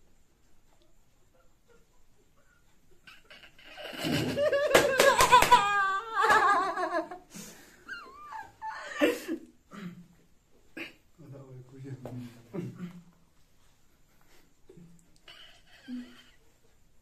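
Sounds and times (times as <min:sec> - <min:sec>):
young men laughing: 0:03.1 - 0:09.5.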